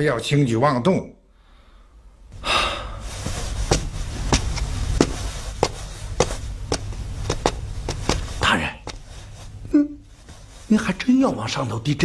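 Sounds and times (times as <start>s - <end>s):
footsteps on hard floor: 3.0s - 10.8s.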